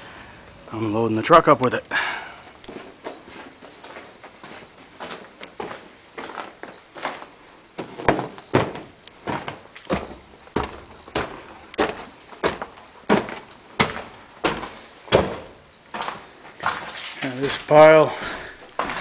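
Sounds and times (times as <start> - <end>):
footsteps on debris and wooden stairs: 2.4 - 19.0.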